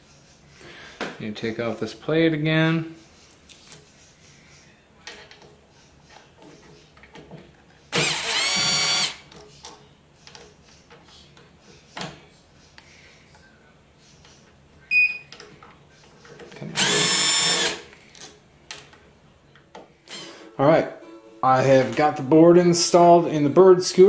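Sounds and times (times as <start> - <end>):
cordless drill motor whining: 7.9 - 9.2, 16.8 - 17.8.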